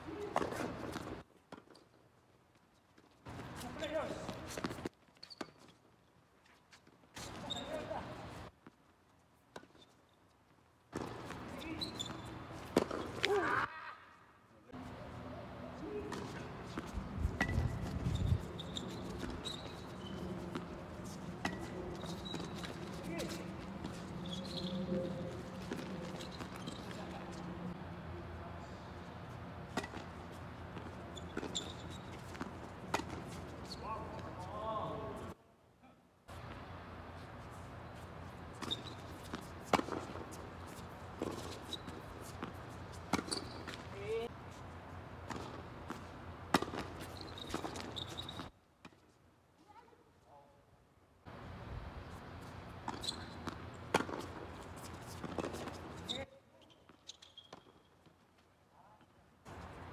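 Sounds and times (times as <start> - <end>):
balls bouncing on hard court: 10.9 - 13.6, 15.8 - 27.7, 29.6 - 34.7, 38.4 - 44.3, 45.2 - 49.0, 52.8 - 58.2
tennis balls struck by rackets: 12.6 - 13.4, 19.0 - 27.5, 29.7 - 33.6, 38.6 - 43.9, 45.2 - 48.0, 52.8 - 56.0
tennis ball struck by racquets: 12.7 - 13.4, 29.7 - 33.3, 38.6 - 40.3, 42.4 - 43.8, 45.2 - 47.0, 52.8 - 54.5.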